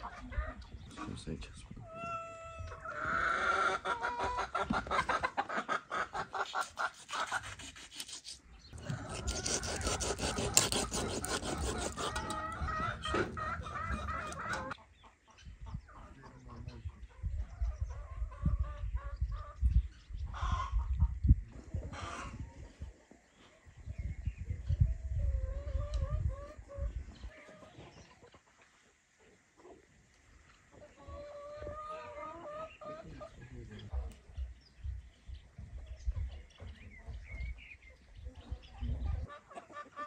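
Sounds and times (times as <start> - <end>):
chickens clucking: 0.0 - 7.6, 8.7 - 40.0
knife scraping fish scales: 6.6 - 12.5.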